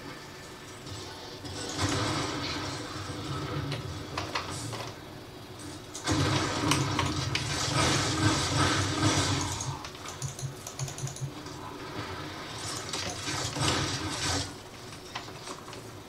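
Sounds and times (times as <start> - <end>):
keyboard keys clacking: 10.0 - 11.4.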